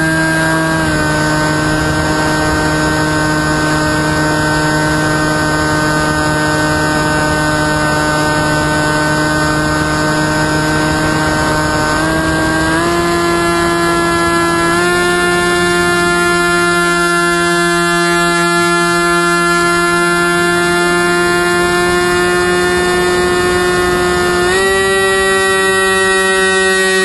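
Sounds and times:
electric motor and propeller hum: 0.0s - 27.0s
wind rush: 0.8s - 14.7s.

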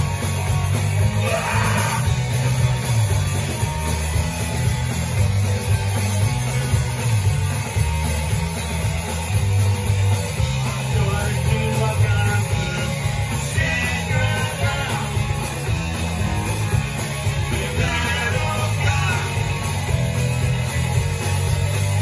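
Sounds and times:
punk rock band playing: 0.0s - 22.0s
man singing: 1.2s - 2.1s, 10.7s - 15.4s, 17.5s - 19.6s.

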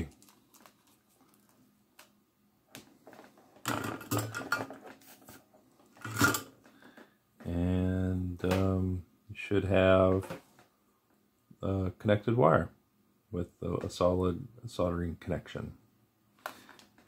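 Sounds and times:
clicks and handling noises: 0.0s - 7.1s.

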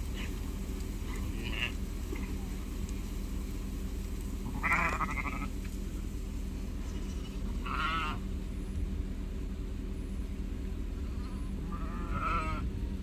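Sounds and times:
low rumble: 0.0s - 13.0s
sheep bleating: 1.1s - 2.4s, 4.4s - 5.5s, 7.1s - 8.2s, 11.4s - 12.7s.

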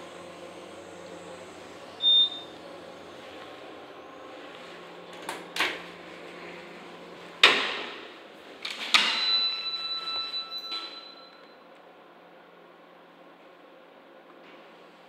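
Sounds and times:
elevator car low hum: 0.0s - 15.0s
ringing tone: 9.1s - 11.6s.

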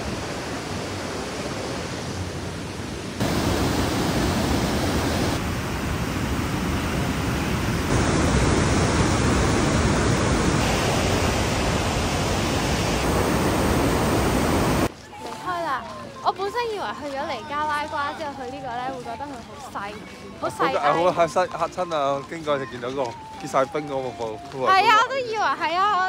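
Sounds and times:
waterfall rushing: 0.0s - 14.9s.

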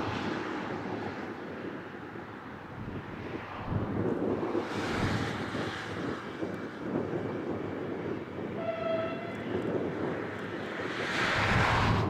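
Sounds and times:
steady rushing noise: 0.0s - 8.7s, 9.3s - 12.0s
train horn blast: 8.6s - 9.6s.

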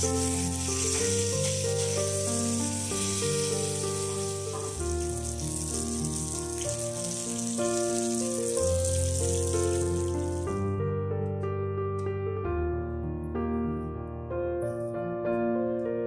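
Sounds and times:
fish sizzling in oil: 0.0s - 10.6s
background piano music: 0.0s - 16.0s.

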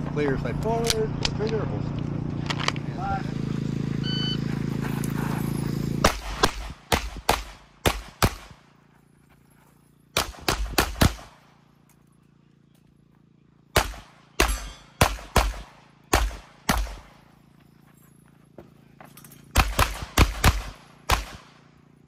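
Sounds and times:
handgun shots with echo: 13.8s - 17.1s, 19.5s - 21.6s.

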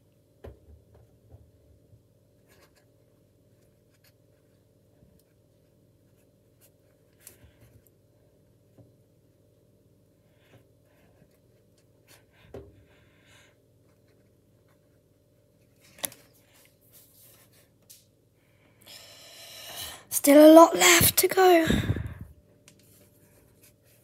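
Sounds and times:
soft breath-like hiss: 18.8s - 20.1s.

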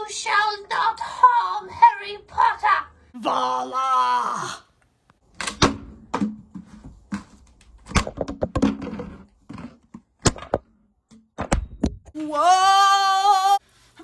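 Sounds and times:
thumps and knocks of movement: 5.4s - 12.2s.

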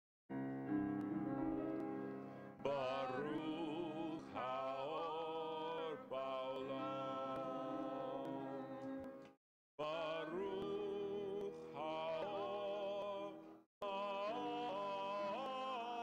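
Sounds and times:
grand piano playing slow song: 0.3s - 9.2s
person singing: 2.6s - 8.8s, 9.8s - 16.0s.

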